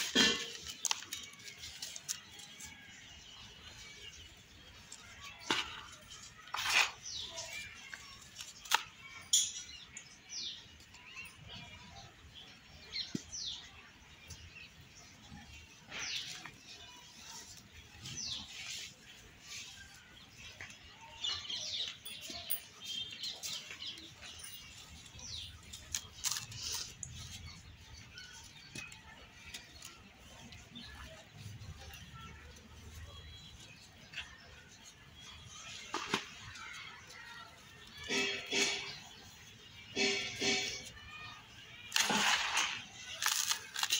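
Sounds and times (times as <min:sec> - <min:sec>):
dry soil rustling and pattering: 0:00.0 - 0:09.2, 0:14.2 - 0:43.9
soil lumps crunching: 0:25.1 - 0:31.3, 0:41.9 - 0:43.9.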